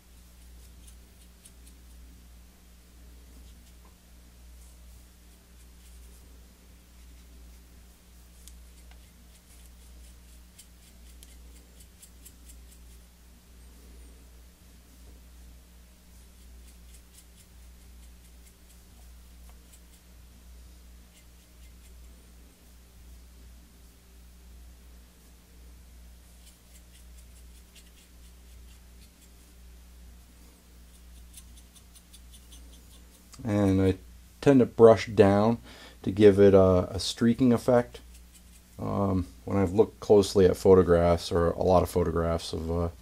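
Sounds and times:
paintbrush bristles scratching: 0:00.0 - 0:02.1, 0:03.3 - 0:03.9, 0:04.5 - 0:07.7, 0:08.3 - 0:13.1, 0:16.1 - 0:20.1, 0:21.0 - 0:22.3, 0:26.2 - 0:29.6, 0:30.4 - 0:34.0, 0:36.9 - 0:40.5
steady low hum: 0:00.0 - 0:43.0.

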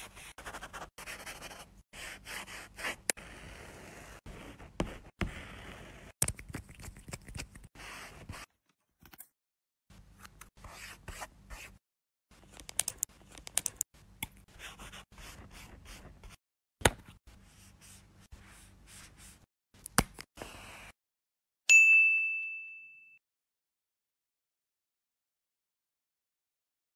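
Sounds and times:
pencil stroking paper: 0:00.0 - 0:08.5, 0:14.5 - 0:16.4, 0:17.4 - 0:19.5.

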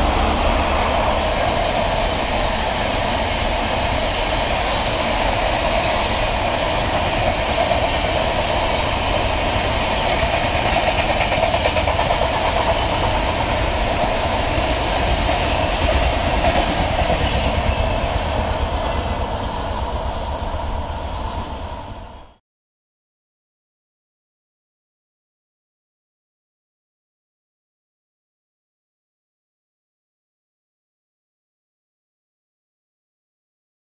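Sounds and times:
train wheels rumbling on track: 0:00.0 - 0:22.4.

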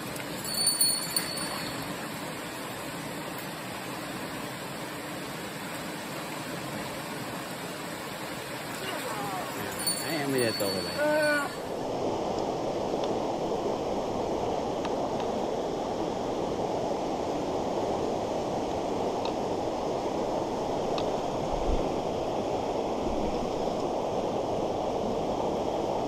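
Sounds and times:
stream rushing over rocks: 0:00.0 - 0:12.6.

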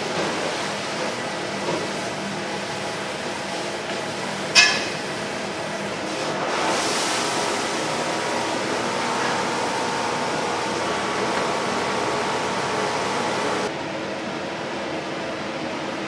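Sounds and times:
kitchen hiss: 0:03.0 - 0:13.7.

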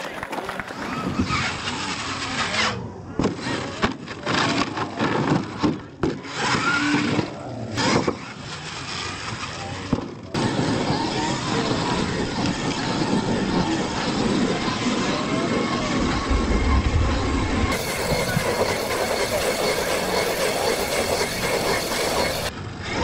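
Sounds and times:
tyres scrabbling on gravel: 0:00.0 - 0:01.2
spectators' voices: 0:00.0 - 0:05.0
toy truck motor revving: 0:00.7 - 0:16.6, 0:17.6 - 0:23.0.

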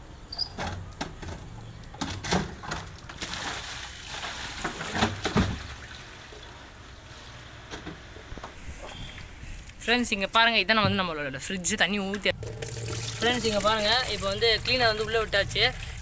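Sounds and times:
metal refrigerator body clunking: 0:00.3 - 0:03.2.

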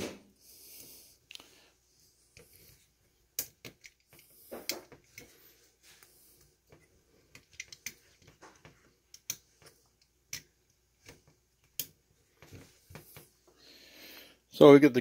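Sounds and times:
small clicks of copper wires: 0:06.7 - 0:12.0.

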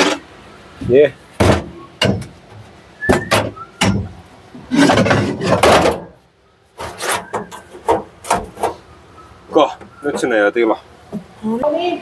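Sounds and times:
car parts knocking and clunking: 0:00.0 - 0:08.9, 0:09.6 - 0:11.4
scraping rub: 0:04.6 - 0:08.9.

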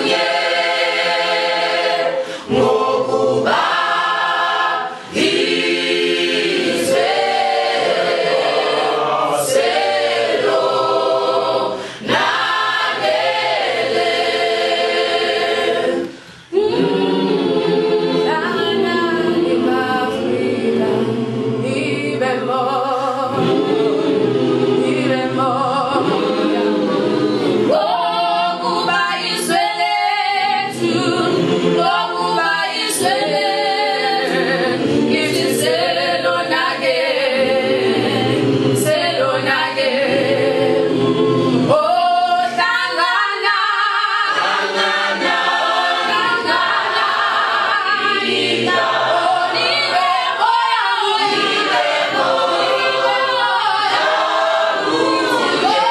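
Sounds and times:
choir of young voices singing: 0:00.0 - 0:55.9
singers breathing: 0:02.2 - 0:02.5, 0:04.9 - 0:05.2, 0:11.7 - 0:12.1, 0:16.0 - 0:16.6.

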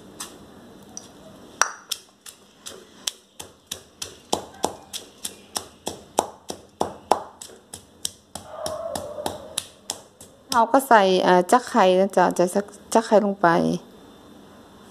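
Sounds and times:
stone pestle pounding in mortar: 0:01.6 - 0:10.8.

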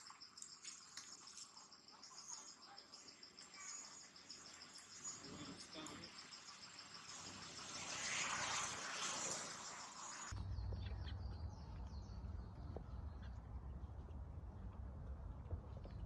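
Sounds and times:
insects chirring: 0:00.0 - 0:10.3.

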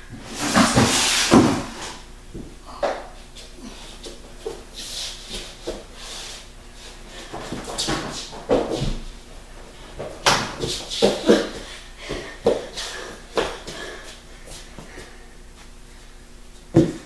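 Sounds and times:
child stomping on hardwood floor: 0:07.3 - 0:09.1, 0:16.7 - 0:17.0.

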